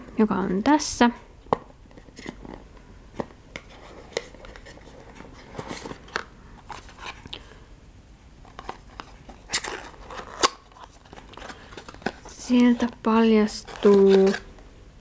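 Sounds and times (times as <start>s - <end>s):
cardboard box rustling and scraping: 3.6s - 6.1s, 8.6s - 14.5s.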